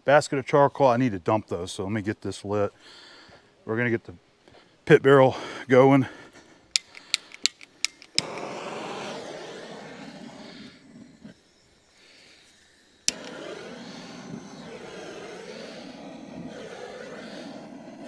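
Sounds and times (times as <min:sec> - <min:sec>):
torch lighter clicks: 0:06.7 - 0:08.7, 0:13.0 - 0:13.6
jet flame hissing: 0:06.7 - 0:18.0.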